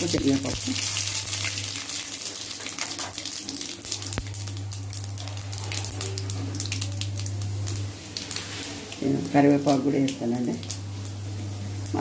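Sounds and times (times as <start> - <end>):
seeds sizzling and popping in oil: 0.0 - 12.0
steady low hum: 3.9 - 12.0.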